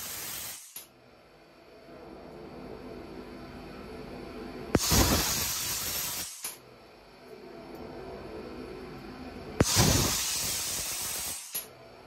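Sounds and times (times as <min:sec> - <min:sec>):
rushing hiss of compressed air: 0:00.0 - 0:00.8, 0:04.8 - 0:06.6, 0:09.6 - 0:11.7.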